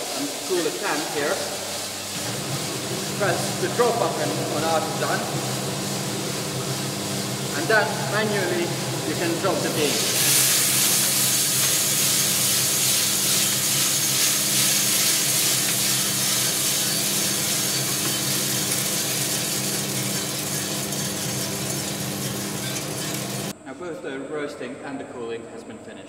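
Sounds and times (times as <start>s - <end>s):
coffee beans pouring rattling: 0.0s - 5.2s, 7.6s - 23.5s
roaster fans and motors humming: 0.0s - 23.6s.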